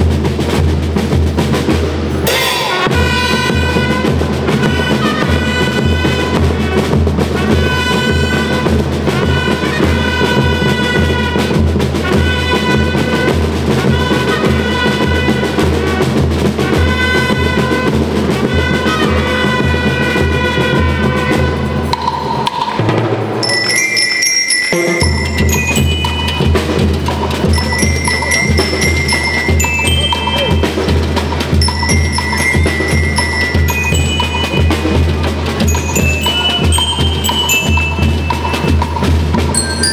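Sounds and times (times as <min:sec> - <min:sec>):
drums playing march beat: 0:00.0 - 0:39.9
bell lyre melody: 0:23.4 - 0:39.9.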